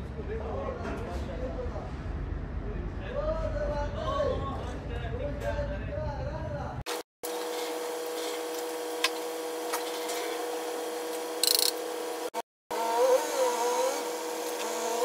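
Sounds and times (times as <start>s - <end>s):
electric cutter motor whining: 7.3s - 15.0s.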